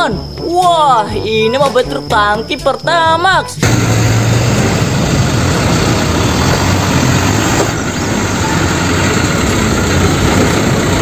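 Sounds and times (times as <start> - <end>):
truck engine idling: 3.6 - 11.0.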